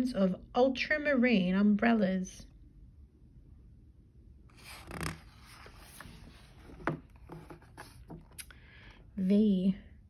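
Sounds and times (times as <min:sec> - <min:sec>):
book page turning: 0:04.5 - 0:08.5.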